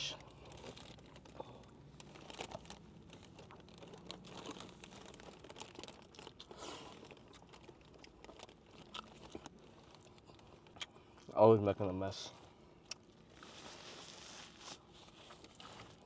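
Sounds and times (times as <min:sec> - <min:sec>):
paper food wrappers crinkling: 0:00.0 - 0:10.8
small clicks and rustles: 0:00.3 - 0:10.8.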